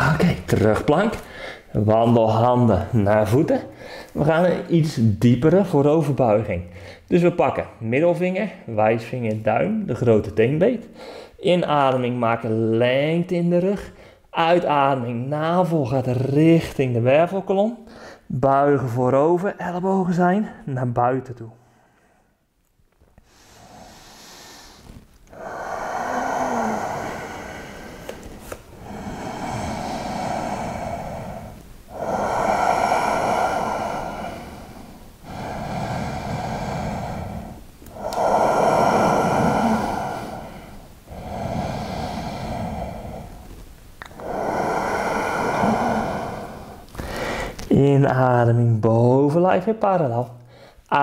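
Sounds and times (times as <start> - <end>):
man breathing deeply: 1.2 - 1.8, 3.7 - 4.2, 11.0 - 11.4, 23.2 - 47.7, 50.5 - 50.9.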